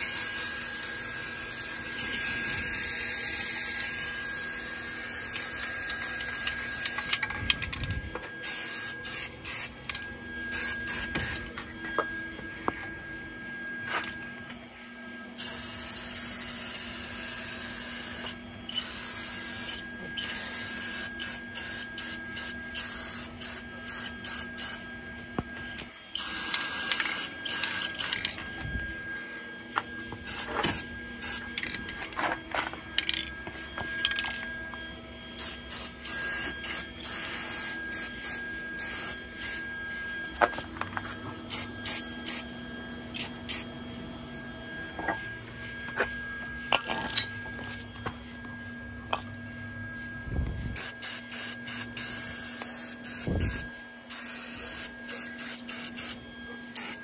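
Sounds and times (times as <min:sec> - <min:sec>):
aerosol spray can hissing: 0:50.8 - 0:56.2.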